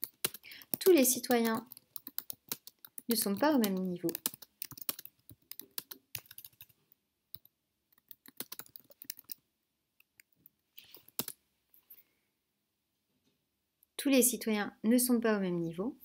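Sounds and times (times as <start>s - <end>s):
typing on computer keyboard: 0.0s - 9.4s, 10.0s - 11.4s.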